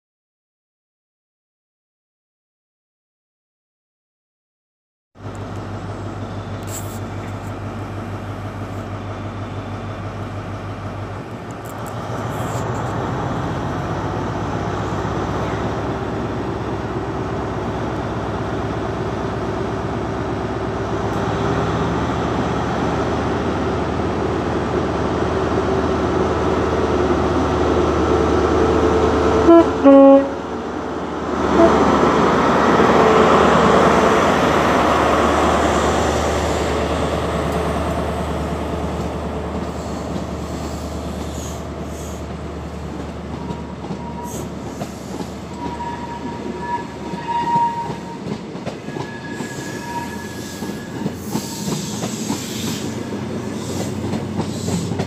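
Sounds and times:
diesel locomotive engine: 5.2 - 55.0
two-tone train horn blasts: 28.5 - 30.6, 31.5 - 32.2, 43.3 - 44.5, 45.5 - 52.6.

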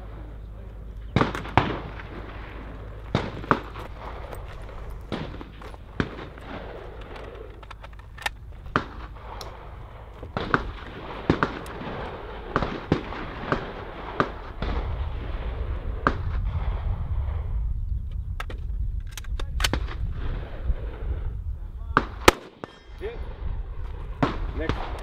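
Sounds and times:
wind rumble on microphone: 0.0 - 25.0
rifle shots: 1.1 - 16.8, 22.0 - 22.8.

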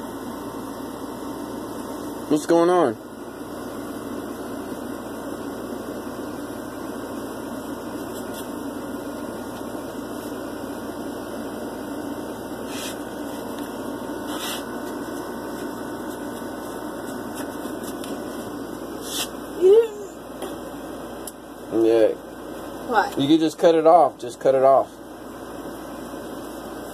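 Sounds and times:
air conditioner humming: 0.0 - 26.9.

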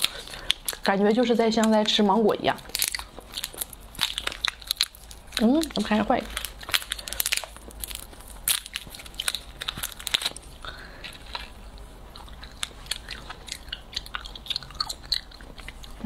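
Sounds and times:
chewing soft jelly: 0.0 - 16.0
plastic wrapper crinkling: 0.0 - 16.0
wet mouth clicks: 12.2 - 16.0.

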